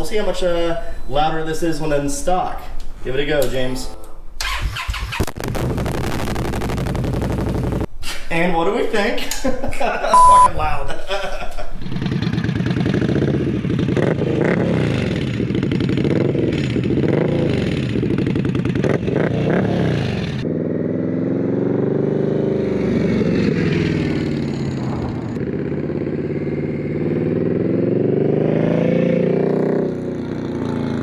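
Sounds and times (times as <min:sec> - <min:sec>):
motorcycle engine revving: 0:11.8 - 0:31.0.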